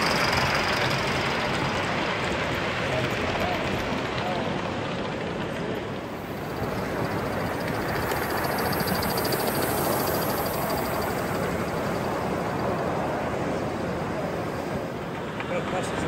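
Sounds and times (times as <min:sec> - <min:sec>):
model train wheels rumbling on rails: 0:00.0 - 0:16.0
rapid even ticking: 0:06.2 - 0:13.1.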